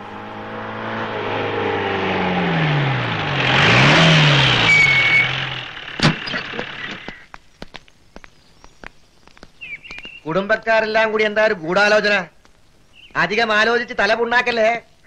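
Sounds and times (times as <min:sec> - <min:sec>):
jeep engine running: 0:00.0 - 0:07.2
tyre and road noise: 0:00.0 - 0:10.7
brief high squeal: 0:04.6 - 0:05.4
sharp clunk: 0:06.0 - 0:07.2.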